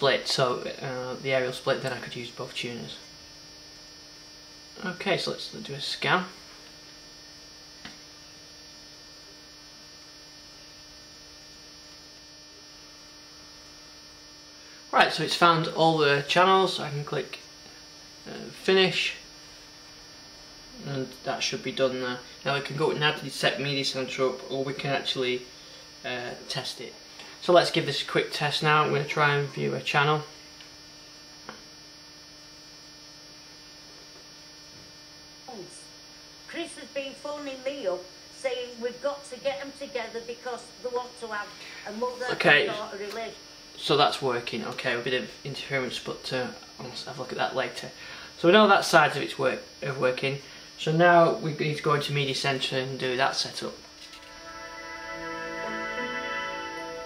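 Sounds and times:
electrical hum with high whine: 0.0 - 57.0.

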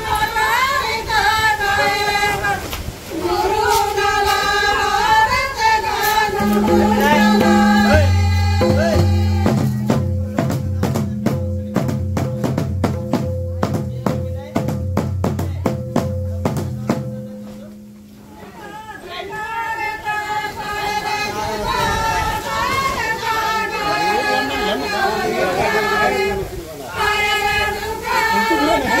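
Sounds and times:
women singing together: 0.0 - 10.4, 18.4 - 29.0
drum beat: 6.4 - 18.0.

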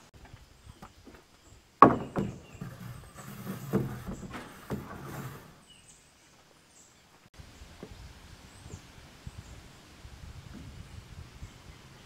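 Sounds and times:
metal roofing panel clanking: 1.8 - 5.6.

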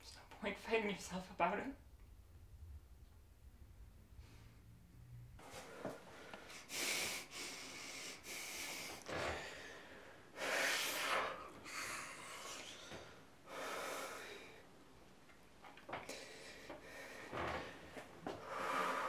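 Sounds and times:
man breathing heavily: 5.4 - 14.7, 16.0 - 19.0.

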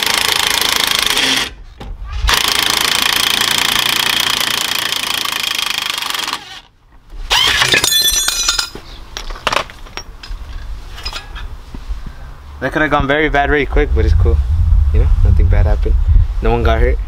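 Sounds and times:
impact wrench running: 0.0 - 1.6, 2.3 - 6.7
metal clatter with ringing: 7.7 - 8.8.

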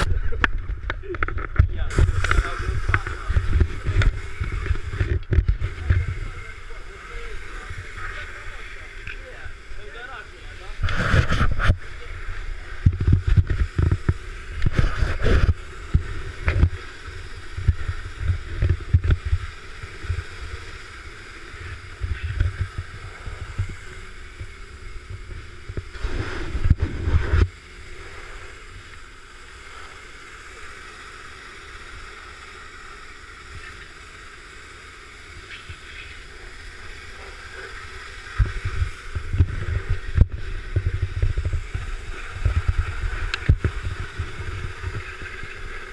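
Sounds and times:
pressure washer spraying: 1.9 - 45.9.

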